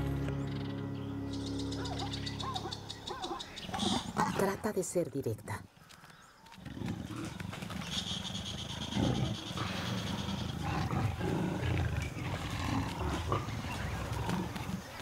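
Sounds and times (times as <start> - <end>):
leopard growling: 1.8 - 4.6, 6.6 - 15.0.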